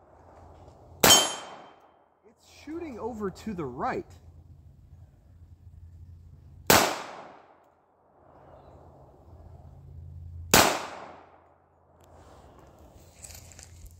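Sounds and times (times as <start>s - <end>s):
pistol shots with echo: 1.0s - 1.8s, 6.7s - 7.6s, 10.5s - 11.4s.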